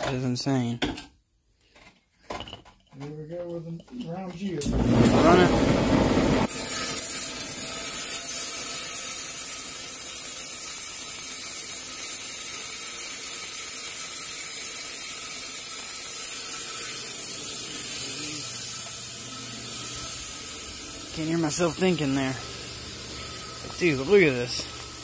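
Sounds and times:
rock saw cutting with high hiss: 6.4 - 25.0.

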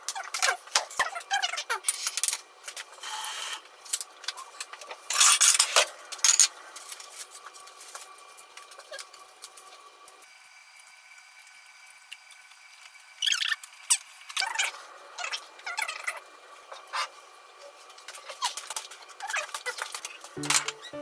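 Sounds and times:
dishes and utensils clinking: 20.4 - 21.0.

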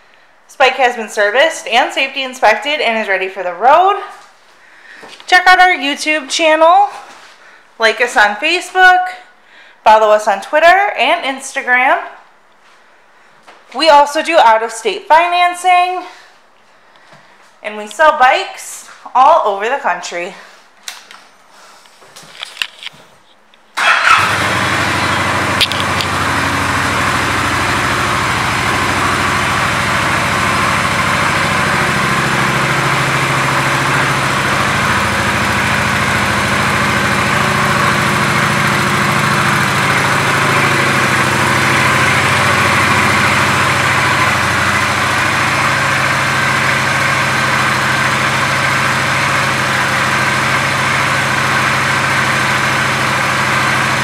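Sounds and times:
motorcycle engine idling: 23.8 - 54.0.

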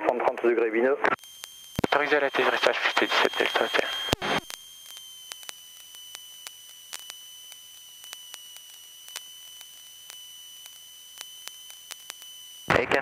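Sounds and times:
faint radio clicks: 1.0 - 12.7
high-pitched electrical whine: 1.1 - 13.0.

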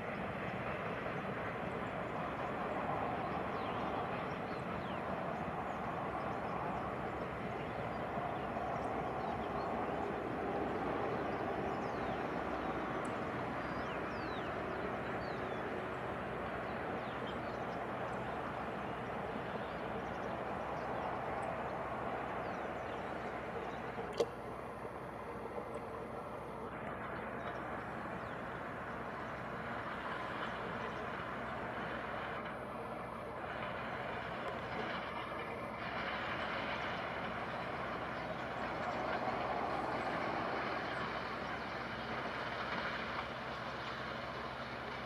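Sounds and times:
train wheels on rails: 0.0 - 45.0.

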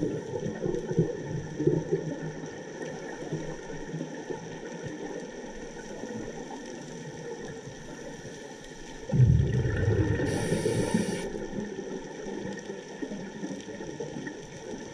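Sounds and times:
bubbles rumbling and gurgling: 0.0 - 14.9
underwater hiss: 9.4 - 11.6.

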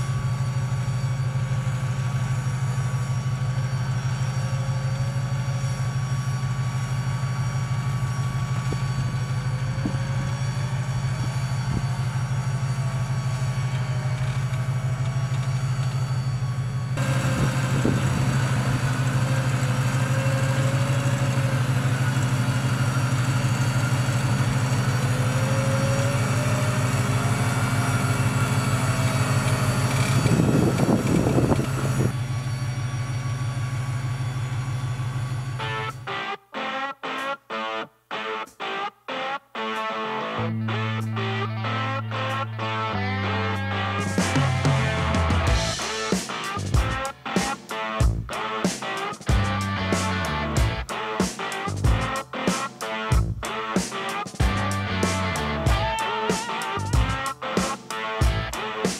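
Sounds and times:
faint wavering high tone: 0.0 - 36.2
vehicle engine running: 0.0 - 36.2, 40.4 - 58.9.

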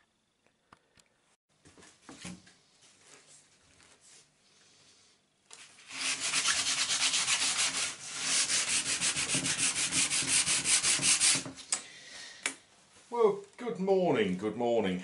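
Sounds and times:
sandpaper rubbing on wood: 5.9 - 11.5.

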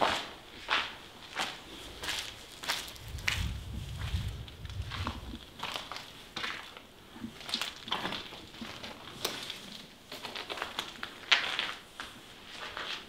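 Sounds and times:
footsteps crunching on debris: 0.0 - 6.8.

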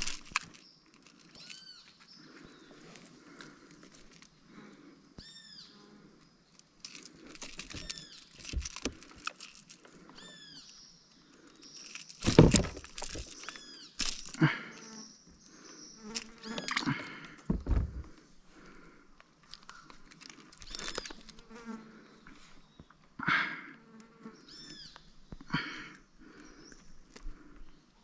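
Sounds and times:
loud thump: 17.5 - 18.1.

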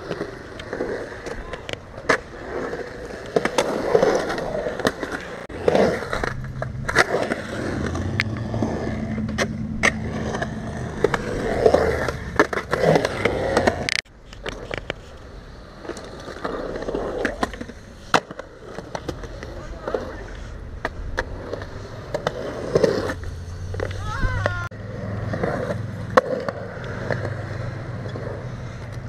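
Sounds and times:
skateboard wheels rolling on concrete: 0.0 - 29.0
skateboard clacks: 15.8 - 29.0.

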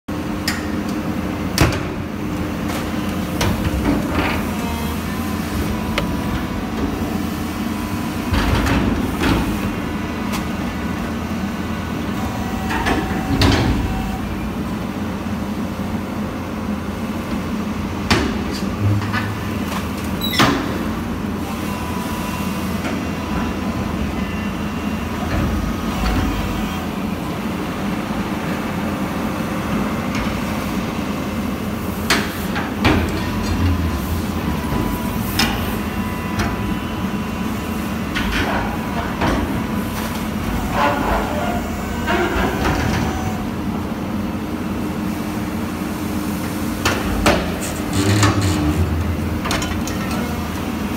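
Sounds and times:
excavator engine and hydraulics: 0.1 - 50.9
metal tearing bangs and creaks: 47.8 - 49.6.

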